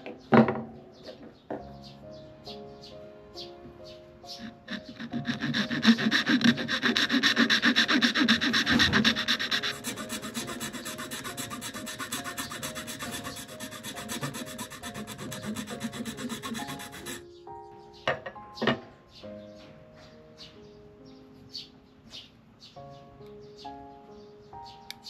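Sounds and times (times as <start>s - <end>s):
sanding wood by hand: 4.4s - 17.2s.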